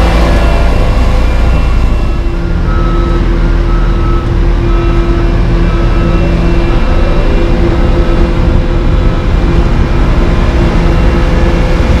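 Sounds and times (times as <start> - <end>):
diesel machinery engine drone: 0.0 - 12.0.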